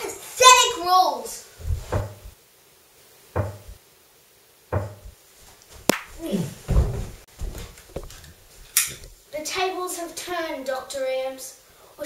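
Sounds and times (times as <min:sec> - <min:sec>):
thumps and knocks: 0:01.6 - 0:02.4, 0:03.4 - 0:03.8, 0:04.7 - 0:05.2, 0:05.8 - 0:08.3
short falling vocal cry: 0:06.2 - 0:06.6.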